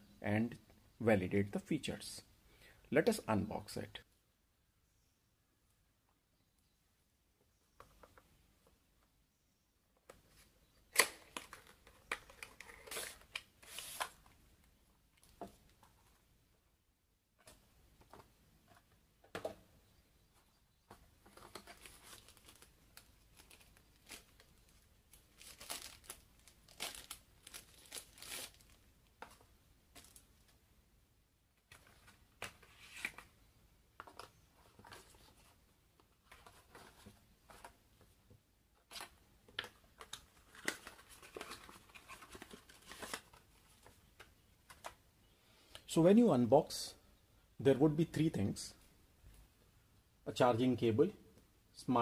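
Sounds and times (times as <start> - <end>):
plastic packaging rustling and tearing: 21.3 - 28.8, 40.0 - 43.9.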